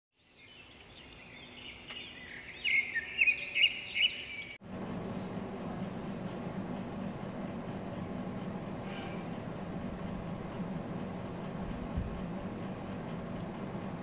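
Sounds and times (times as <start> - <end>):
birds chirping: 0.2 - 5.4
outdoor background hum: 0.2 - 14.0.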